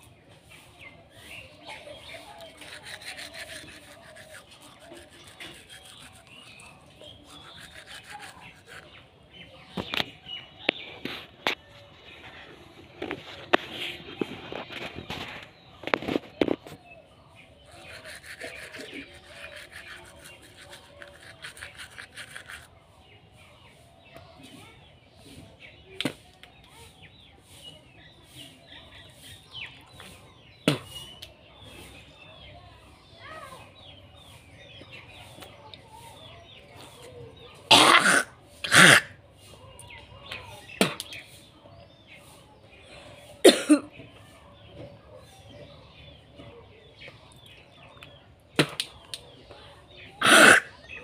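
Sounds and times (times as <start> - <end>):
toothbrush scrubbing teeth: 2.1 - 9.0, 17.7 - 22.7.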